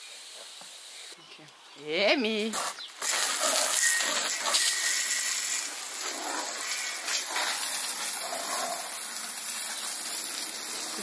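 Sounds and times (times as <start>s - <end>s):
hose water jet spattering on wood: 2.5s - 11.0s.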